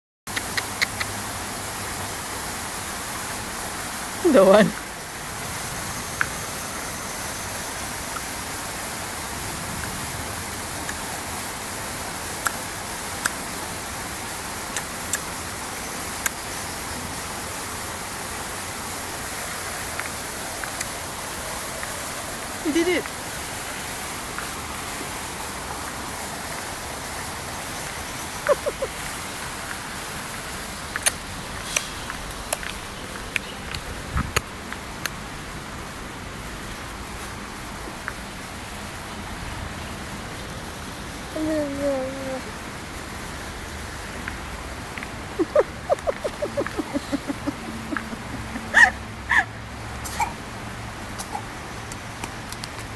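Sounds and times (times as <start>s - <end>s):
baby clicking mouth: 0.3s - 1.2s, 14.7s - 15.3s, 31.0s - 31.2s
rushing hiss: 4.8s - 32.4s.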